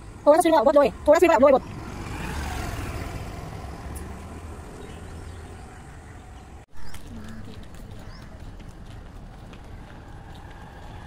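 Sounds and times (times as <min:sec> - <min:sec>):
road noise: 0:00.0 - 0:11.0
scooter riding past: 0:01.4 - 0:11.0.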